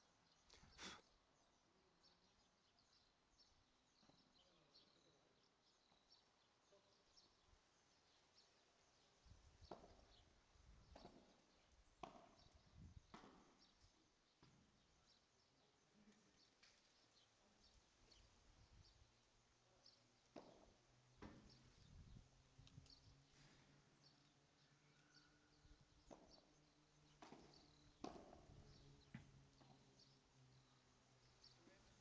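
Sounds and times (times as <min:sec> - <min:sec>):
faint bird chirps: 0:00.1 - 0:20.2, 0:21.4 - 0:32.0.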